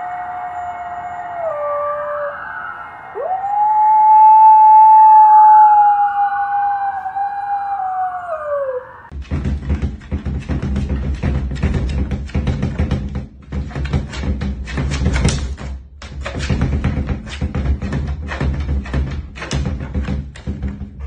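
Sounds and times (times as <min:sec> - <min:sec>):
dog howling: 0:00.0 - 0:09.1.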